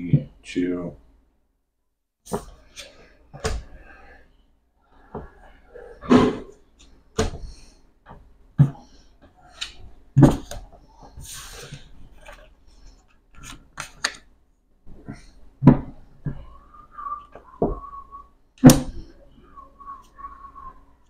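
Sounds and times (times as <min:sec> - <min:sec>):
cards sliding rustle: 0:11.2 - 0:14.2.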